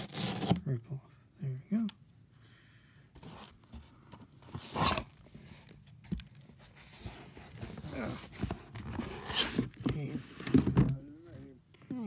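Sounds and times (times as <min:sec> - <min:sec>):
cardboard box rustling and scraping: 0:03.2 - 0:11.4.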